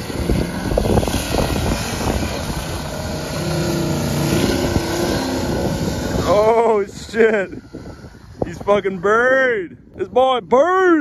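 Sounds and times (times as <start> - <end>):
truck engine working hard: 0.0 - 10.1
tires churning through snow: 0.0 - 11.0.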